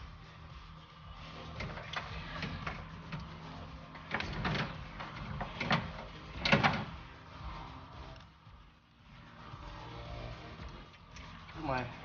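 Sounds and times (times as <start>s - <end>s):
metal knocking and rattling: 1.6s - 7.0s.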